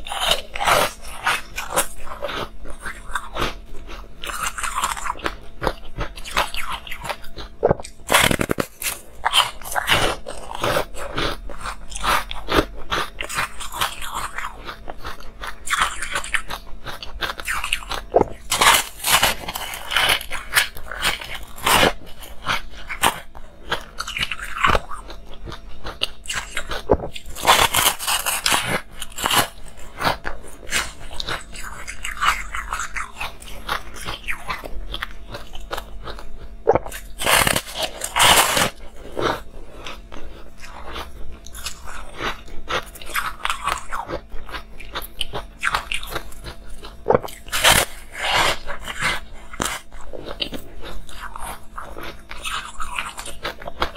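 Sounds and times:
chewing ice pieces: 0.0 - 53.9
crunching bites into ice: 27.1 - 29.5, 36.7 - 39.4.

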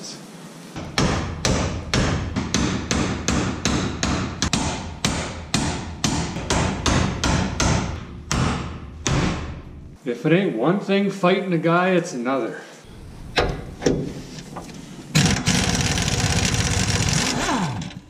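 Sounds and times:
hammer striking steel: 0.8 - 9.9.

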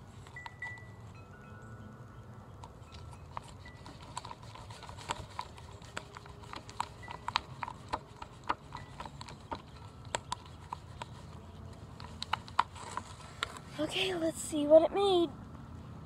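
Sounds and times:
spoon stirring slime in a cup: 0.0 - 1.2, 2.6 - 13.4.

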